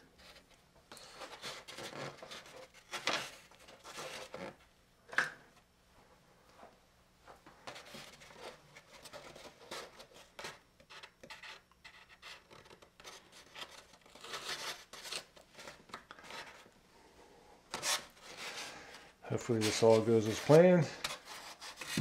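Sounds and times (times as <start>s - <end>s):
cardstock rustling and scraping: 0.2s - 4.6s, 17.7s - 22.0s.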